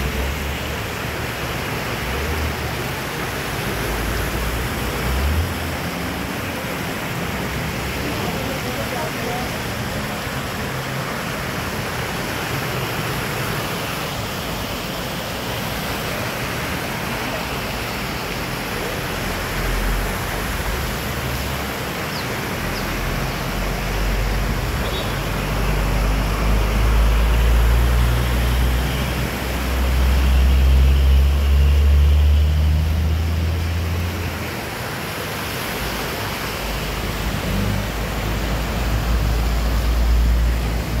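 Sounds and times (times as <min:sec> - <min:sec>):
vehicles driving through water: 0:00.0 - 0:41.0
water rushing across road: 0:00.0 - 0:41.0.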